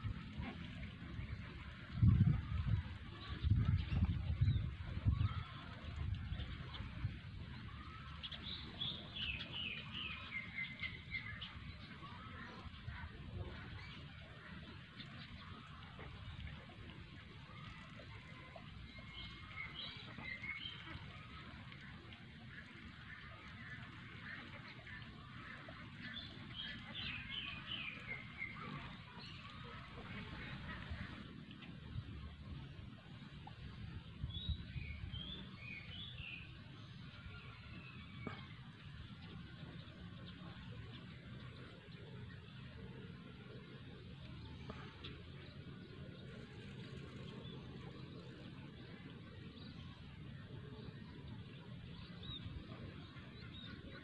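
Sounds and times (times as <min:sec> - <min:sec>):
ducks quacking: 0:22.7 - 0:31.5.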